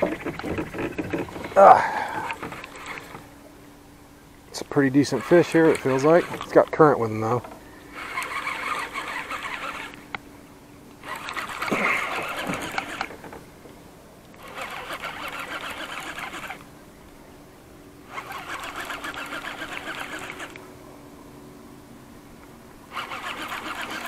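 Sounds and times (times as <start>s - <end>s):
fishing reel ticking whir: 0.0s - 3.3s, 4.6s - 10.2s, 11.0s - 13.4s, 14.4s - 16.7s, 18.1s - 20.7s, 22.9s - 24.0s.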